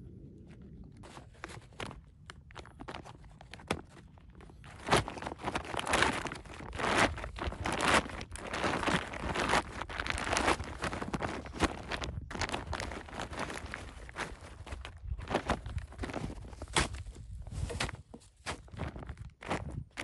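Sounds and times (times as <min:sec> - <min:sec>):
footsteps crunching through snow: 0:04.7 - 0:20.0.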